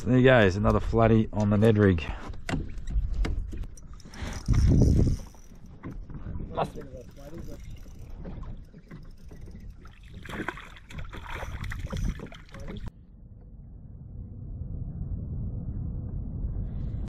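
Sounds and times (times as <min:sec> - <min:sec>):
water sloshing against kayak hull: 0:01.5 - 0:12.9
wind on microphone: 0:02.6 - 0:17.0
knocks and splashes: 0:08.0 - 0:12.9.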